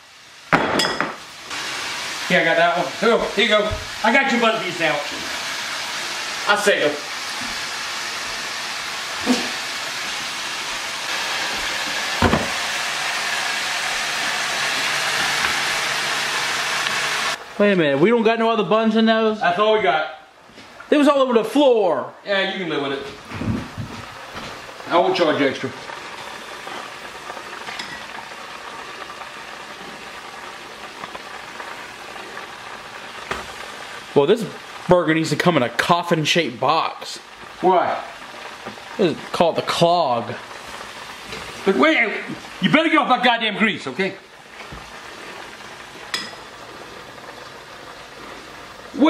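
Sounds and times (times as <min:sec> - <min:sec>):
chicken sizzling in hot oil: 0:00.0 - 0:18.4, 0:22.7 - 0:49.0.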